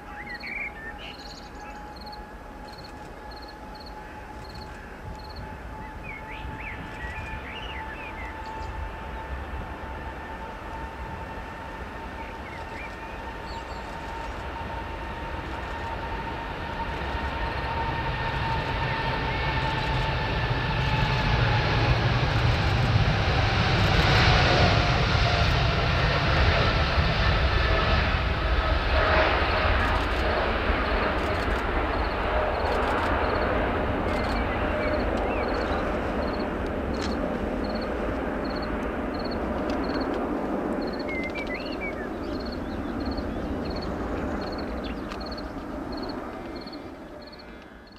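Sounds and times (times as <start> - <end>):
jet engines at takeoff: 0.0 - 47.9.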